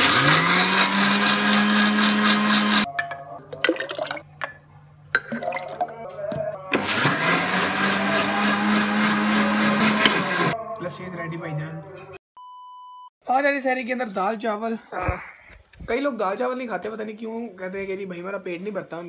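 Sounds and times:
electric blender whining: 0.0 - 2.9, 6.7 - 10.6.

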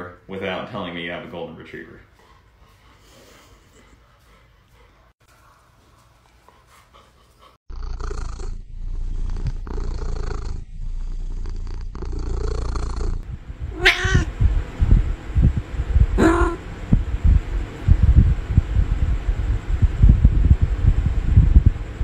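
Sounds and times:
cat purring: 7.7 - 18.8.

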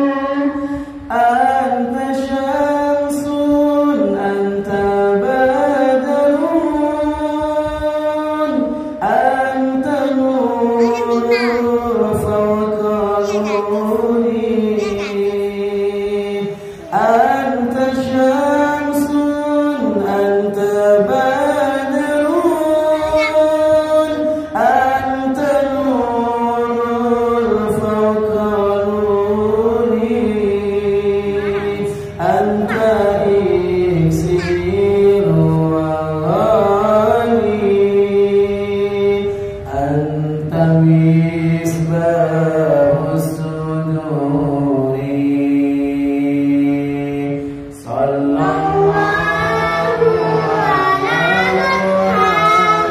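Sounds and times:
man singing unaccompanied: 0.0 - 52.9
singer breathing in: 0.6 - 1.1, 16.5 - 16.9.

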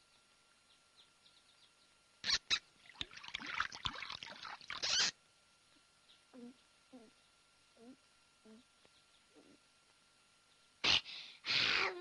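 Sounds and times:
faint birds chirping: 0.0 - 10.9
water pouring into wooden bucket: 2.8 - 5.0.

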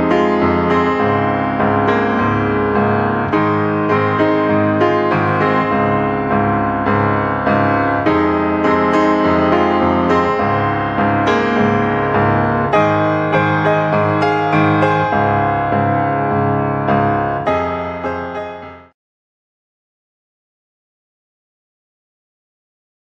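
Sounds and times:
instrumental piano music: 0.0 - 19.0.

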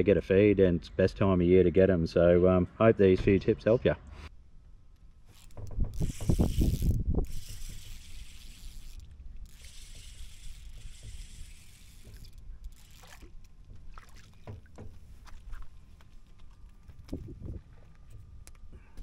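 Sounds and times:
rod and line handling clicks: 4.9 - 13.8, 15.3 - 19.0
water against boat hull: 5.3 - 7.0, 9.0 - 18.4
fishing reel winding: 5.3 - 13.2
wind on microphone: 5.6 - 8.4, 17.0 - 17.8.

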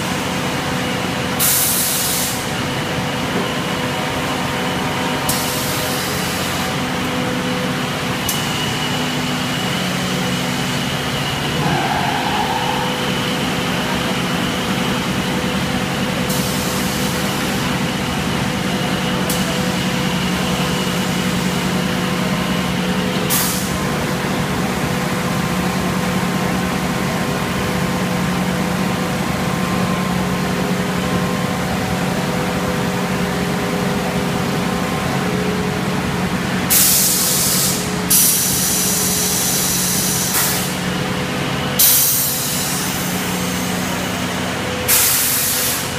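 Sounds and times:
machine humming: 11.0 - 15.6.

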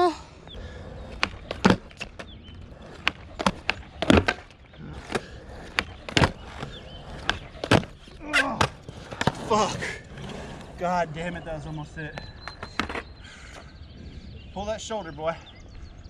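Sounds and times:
skateboard rolling: 0.5 - 13.2
skateboard wooden clacks: 1.0 - 10.7, 12.1 - 13.0.

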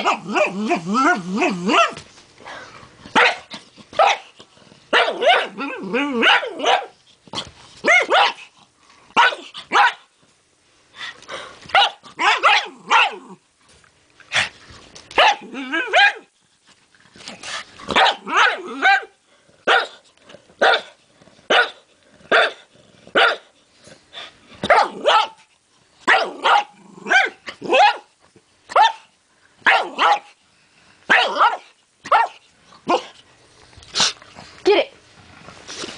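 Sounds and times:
dog barking: 3.2 - 4.3, 4.9 - 5.6, 6.2 - 6.9, 7.8 - 8.4, 9.2 - 10.1, 11.7 - 13.2, 15.2 - 16.3, 17.9 - 19.1, 19.7 - 20.0, 20.6 - 22.6, 23.2 - 23.5, 24.6 - 25.4, 26.1 - 28.1, 28.7 - 30.3, 31.1 - 33.1.

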